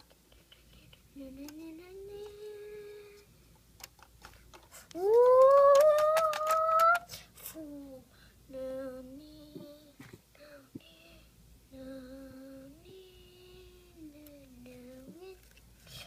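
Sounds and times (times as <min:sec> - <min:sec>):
person humming a tune: 0:00.0 - 0:03.2, 0:05.0 - 0:11.2.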